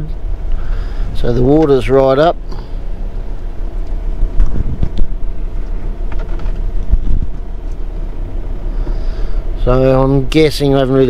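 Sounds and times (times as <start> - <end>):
car engine and road drone: 0.0 - 11.0
car thumps: 6.0 - 7.5.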